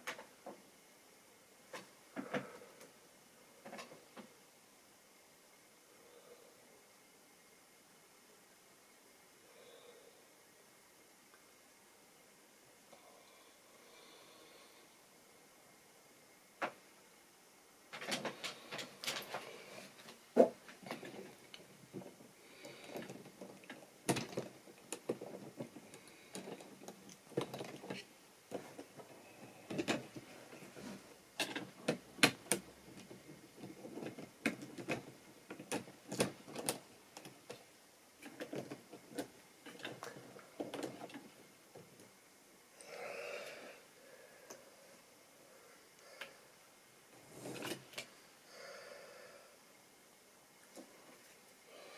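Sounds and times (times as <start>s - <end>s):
plastic clicks and rattles: 22.8s - 28.9s, 29.7s - 30.8s, 31.4s - 37.6s.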